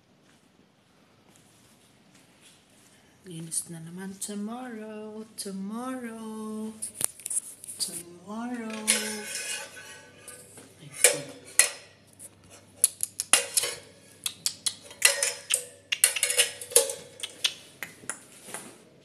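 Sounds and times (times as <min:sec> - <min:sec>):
hard objects knocking and clattering: 0:14.8 - 0:17.2.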